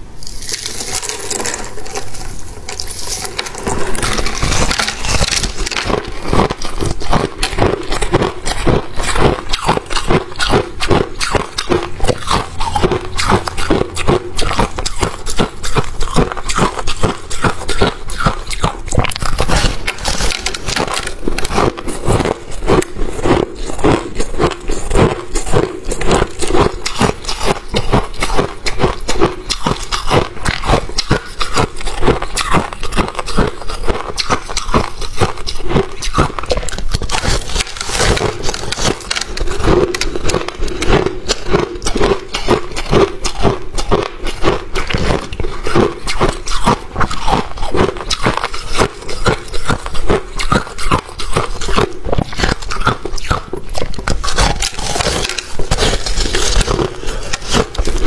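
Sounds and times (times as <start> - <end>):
crushed ice crackling: 0.2 - 12.4, 31.4 - 41.6, 54.1 - 58.0.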